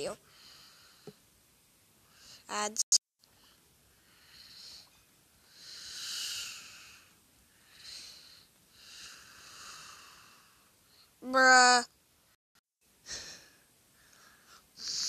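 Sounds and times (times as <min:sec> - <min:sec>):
person breathing: 0:00.2 - 0:01.2, 0:02.0 - 0:02.5, 0:03.3 - 0:11.2, 0:13.0 - 0:15.0.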